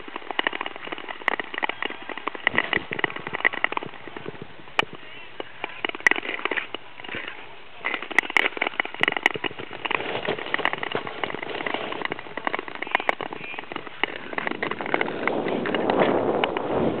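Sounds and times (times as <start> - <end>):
crackling clicks from skate blades: 0.0 - 16.8
wind on microphone: 0.0 - 17.0
ice skates scraping on ice: 5.7 - 17.0.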